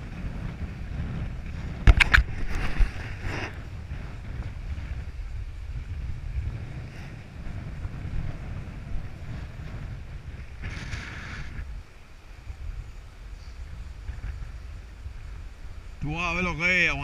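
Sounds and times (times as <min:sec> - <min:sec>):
wind rumbling on microphone: 0:00.0 - 0:17.0
short hiss: 0:10.6 - 0:11.7.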